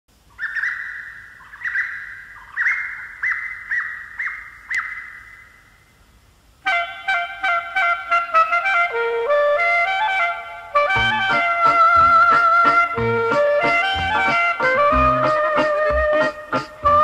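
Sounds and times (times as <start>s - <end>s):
imitation birdsong trills and chirps: 0.2s - 6.0s
dance band playing: 10.9s - 17.0s.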